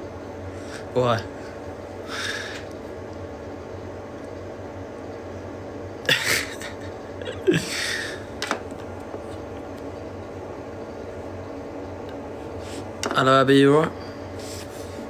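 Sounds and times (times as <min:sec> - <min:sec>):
steady low hum: 0:00.0 - 0:15.0
person breathing and sniffing: 0:02.0 - 0:02.7, 0:12.5 - 0:12.9, 0:14.3 - 0:15.0.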